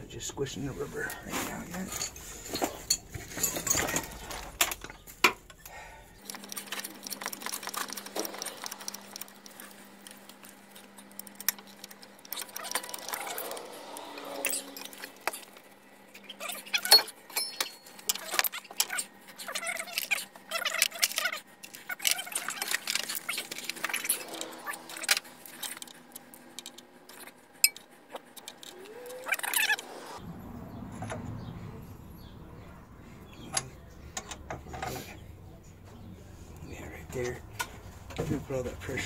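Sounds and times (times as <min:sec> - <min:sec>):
metal tools clicking and clinking: 0:01.7 - 0:29.7.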